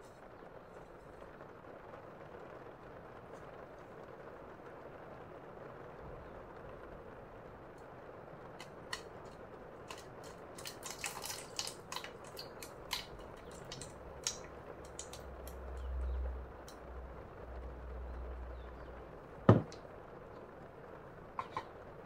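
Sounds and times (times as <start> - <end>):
water dribbling into plastic cup: 8.6 - 16.8.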